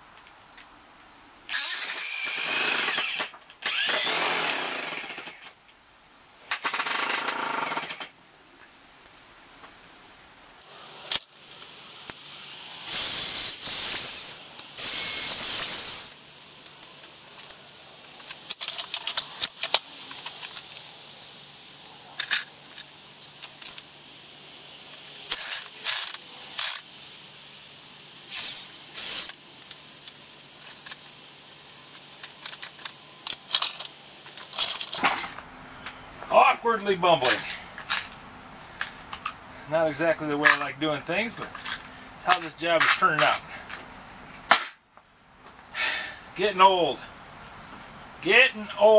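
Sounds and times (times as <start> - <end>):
electric drill boring into wood: 1.5 - 5.4, 12.8 - 16.2.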